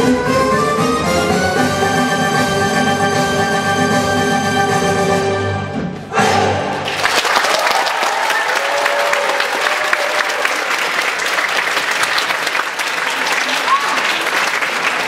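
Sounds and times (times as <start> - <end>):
audience applause: 6.8 - 15.0.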